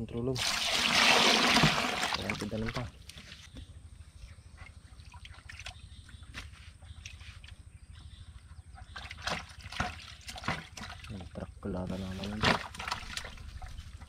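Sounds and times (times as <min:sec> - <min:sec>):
faint trickling water: 0:04.4 - 0:06.2.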